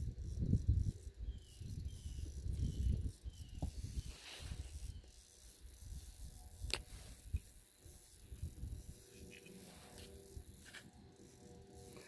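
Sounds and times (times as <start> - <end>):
wind rumbling on microphone: 0.0 - 5.1, 5.7 - 9.1
soft hiss: 2.1 - 12.0.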